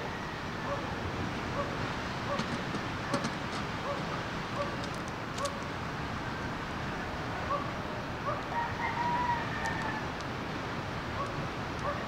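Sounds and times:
rooster crowing: 8.5 - 10.2.

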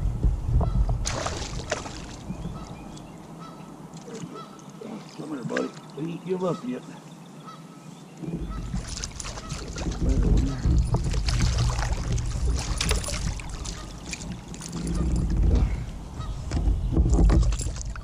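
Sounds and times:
low microphone rumble: 0.0 - 3.0, 8.2 - 18.0
bird honking: 2.4 - 4.8, 5.6 - 10.6, 13.3 - 15.2, 16.1 - 16.6.

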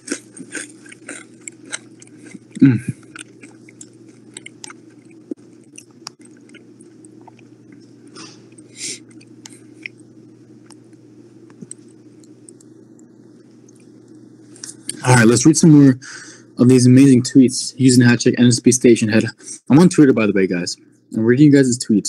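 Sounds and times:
mouth noises: 0.0 - 3.6
chips crunching: 0.0 - 7.5
steady low hum: 0.0 - 22.0.

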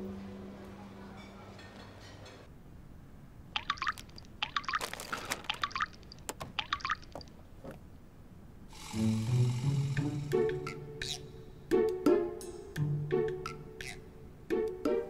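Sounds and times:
music: 0.0 - 0.9, 8.8 - 15.0.

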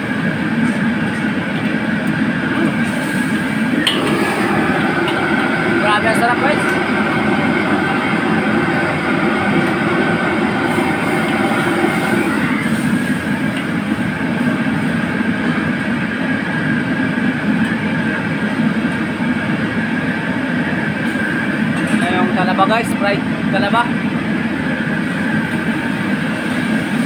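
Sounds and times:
gas burner roaring: 0.0 - 27.0.

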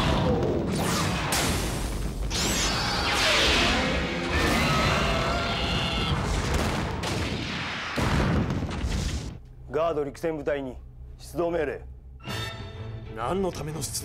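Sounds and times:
crackling blasts and crashes: 0.0 - 9.4
wavering creature cry: 2.8 - 6.3
dramatic music: 12.0 - 14.0.

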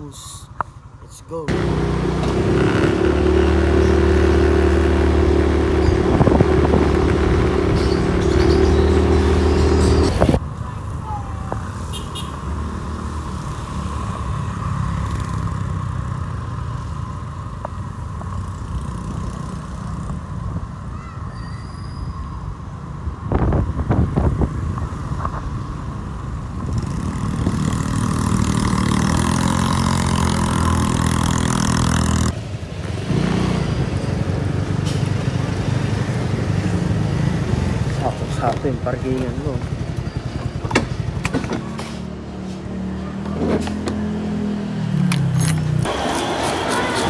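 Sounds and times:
motorcycle engine running: 1.5 - 10.1.

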